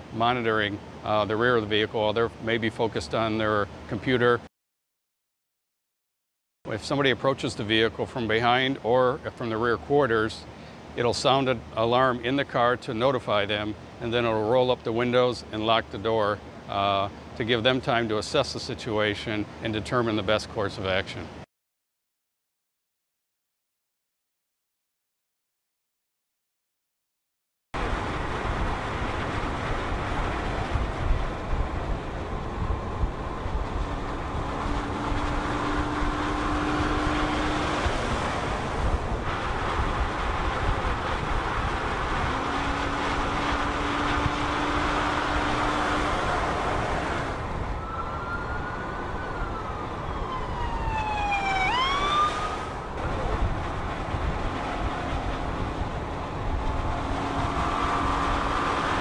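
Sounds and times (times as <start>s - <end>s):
cars driving at speed: 27.8s - 48.1s, 49.0s - 59.0s
police siren wail and whoops: 47.4s - 53.4s.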